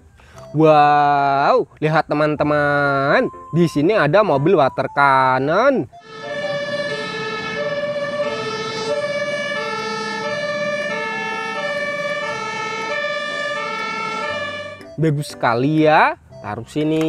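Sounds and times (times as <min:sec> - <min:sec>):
two-tone emergency siren: 0:02.8 - 0:15.1.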